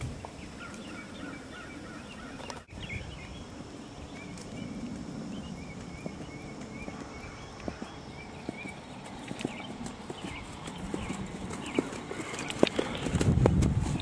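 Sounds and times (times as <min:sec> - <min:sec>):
birds chirping: 0:00.1 - 0:14.0
muffled hoofbeats on grass: 0:03.6 - 0:14.0.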